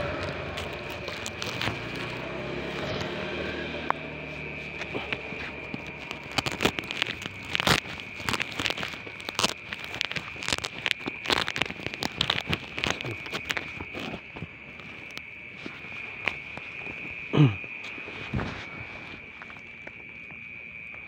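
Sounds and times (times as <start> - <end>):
footsteps on paving: 0.0 - 10.4
night insects droning: 0.0 - 21.0.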